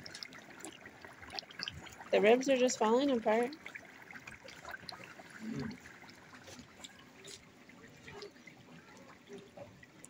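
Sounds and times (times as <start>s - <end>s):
pork simmering in fat: 0.0s - 10.0s.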